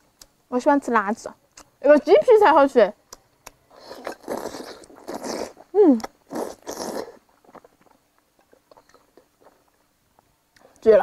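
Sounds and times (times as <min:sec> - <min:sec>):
wet chewing and biting: 0:03.1 - 0:10.8.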